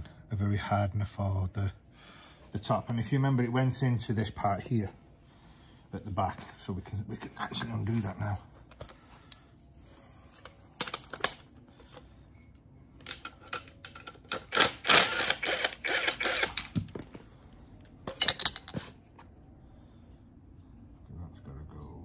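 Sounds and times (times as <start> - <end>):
power tool rattling: 13.0 - 16.9
metal clinks: 16.6 - 19.1.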